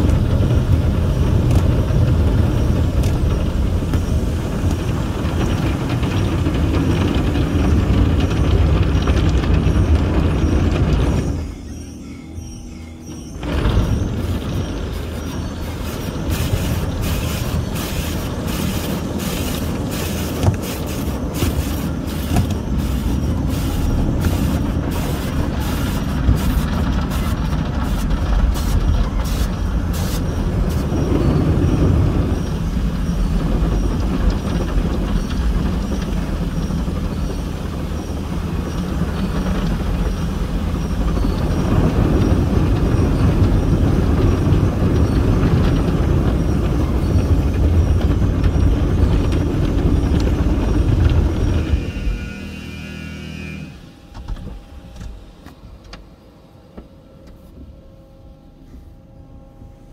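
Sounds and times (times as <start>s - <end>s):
water on car: 0.0s - 10.8s, 14.2s - 51.8s
car wash machinery rumble: 0.0s - 59.9s
brush strips slapping car: 15.9s - 30.8s.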